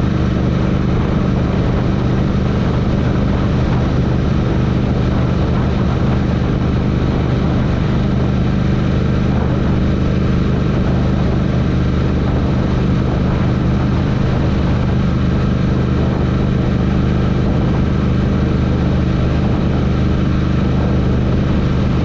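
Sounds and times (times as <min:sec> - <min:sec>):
motorcycle engine running: 0:00.0 - 0:22.0
rush of noise: 0:00.0 - 0:22.0.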